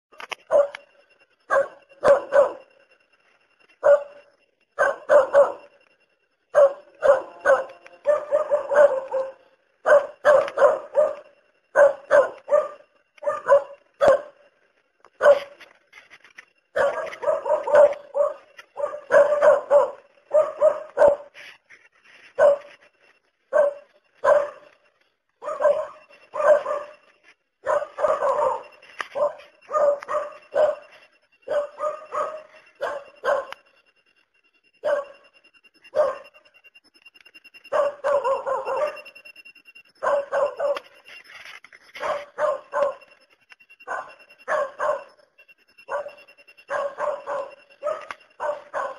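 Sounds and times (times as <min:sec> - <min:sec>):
dog barking: 0:00.5 - 0:00.8, 0:01.5 - 0:02.7, 0:03.8 - 0:05.7, 0:06.5 - 0:14.4, 0:15.2 - 0:15.6, 0:16.8 - 0:21.4, 0:22.3 - 0:22.8, 0:23.5 - 0:24.8, 0:25.4 - 0:33.6, 0:34.8 - 0:35.2, 0:35.9 - 0:36.4, 0:37.7 - 0:39.1, 0:40.0 - 0:41.0, 0:42.0 - 0:43.1, 0:43.8 - 0:45.2, 0:45.8 - 0:48.9.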